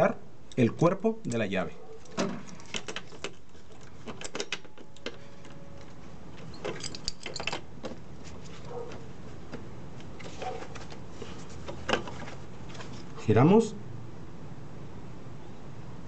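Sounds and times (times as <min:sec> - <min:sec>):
metal wrenches clinking: 0:06.4 - 0:07.7.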